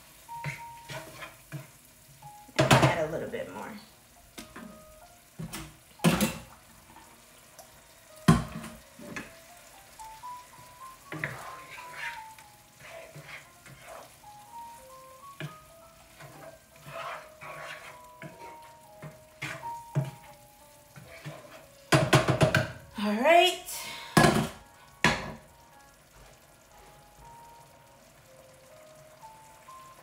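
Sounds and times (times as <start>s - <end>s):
curry simmering: 0.0s - 23.0s, 24.0s - 30.0s
quiet simple melody music: 0.0s - 30.0s
wooden spoon scraping a pan: 0.3s - 1.9s, 11.0s - 22.7s
spoon knocking against pan: 2.6s - 3.0s, 8.3s - 9.4s, 21.0s - 22.8s.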